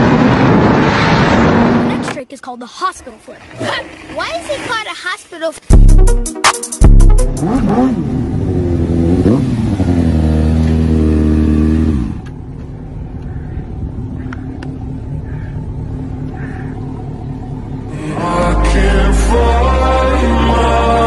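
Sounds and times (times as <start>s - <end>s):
motorcycle engine revving: 6.9s - 12.6s
motorcycle engine idling: 12.2s - 17.9s.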